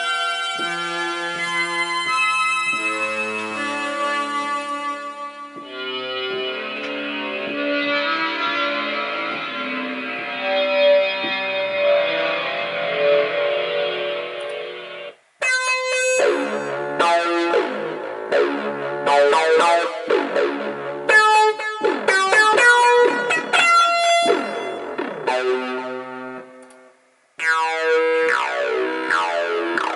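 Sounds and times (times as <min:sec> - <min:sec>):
bright plucked synth notes: 0:15.4 - 0:26.6, 0:27.4 - 0:29.9.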